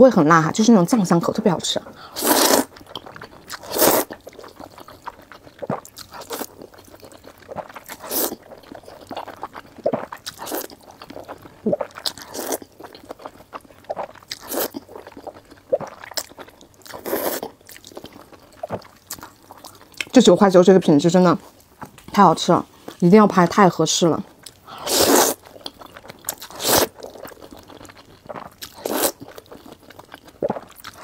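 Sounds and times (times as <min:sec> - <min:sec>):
wet chewing and crunching: 0:01.8 - 0:20.2, 0:24.2 - 0:31.0
noodle slurping: 0:02.0 - 0:12.7, 0:16.9 - 0:17.5, 0:24.7 - 0:25.5, 0:26.3 - 0:27.6, 0:28.2 - 0:29.5.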